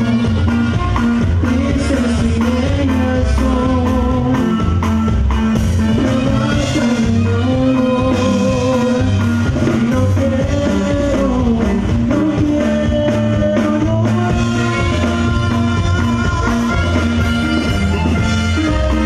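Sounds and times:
saxophone: 0.0 - 2.4, 14.3 - 19.0
accordion: 0.0 - 19.0
acoustic guitar: 0.0 - 19.0
electric bass: 0.0 - 19.0.

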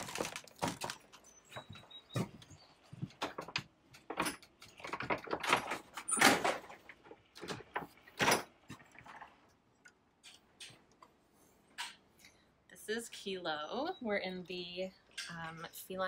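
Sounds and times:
chain-link door rattling: 3.2 - 9.3.

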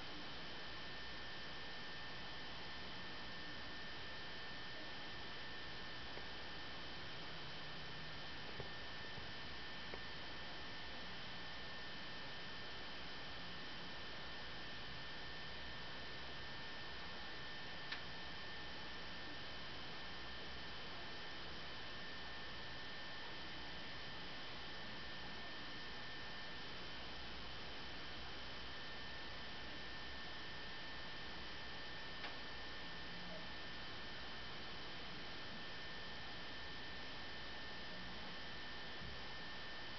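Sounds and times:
electrical hum and hiss: 0.0 - 39.9.

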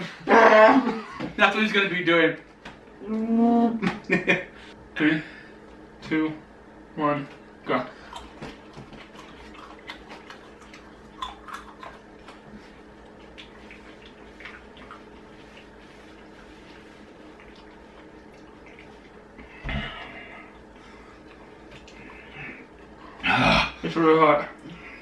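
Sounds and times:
low room hum: 0.0 - 25.0
wet clicks and chewing: 8.0 - 16.3, 17.2 - 19.3, 21.2 - 23.0.

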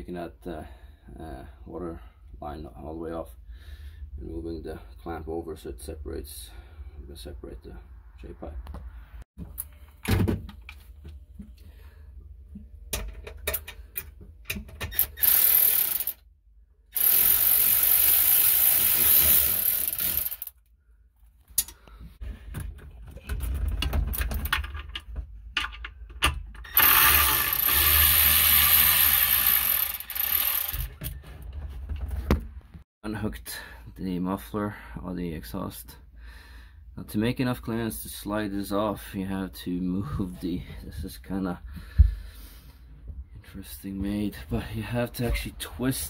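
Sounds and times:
cordless ratchet running: 15.0 - 16.2, 17.0 - 20.5, 26.8 - 31.0.

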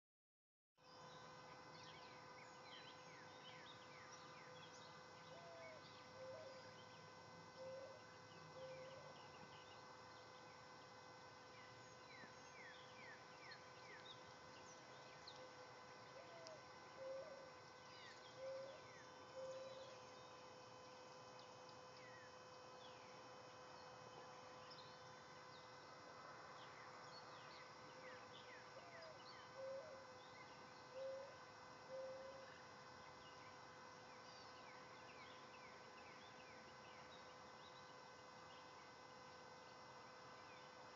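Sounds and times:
steady droning tone: 0.8 - 40.9
birds chirping: 11.5 - 20.4.

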